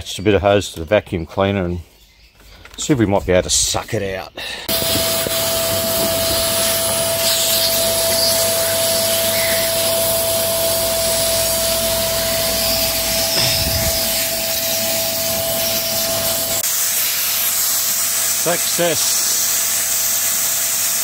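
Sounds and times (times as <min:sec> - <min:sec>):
vacuum cleaner whining: 0:04.6 - 0:21.0.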